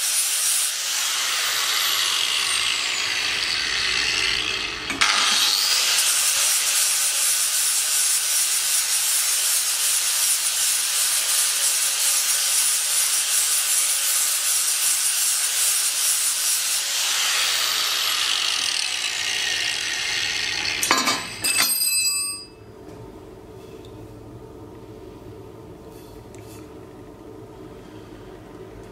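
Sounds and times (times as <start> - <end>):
angle grinder grinding metal: 0.0 - 21.8
low workshop hum: 0.0 - 28.9
metal clanks: 20.6 - 22.4.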